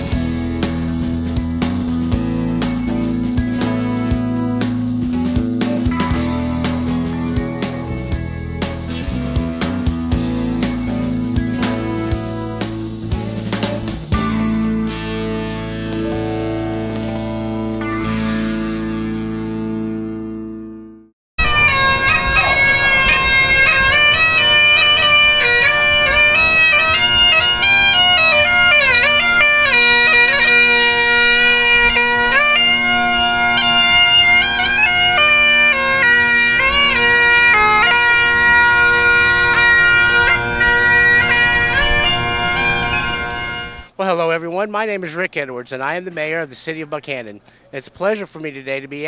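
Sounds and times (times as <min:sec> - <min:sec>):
bagpipes playing: 0:02.1 - 0:09.4, 0:10.2 - 0:13.5, 0:21.4 - 0:44.0.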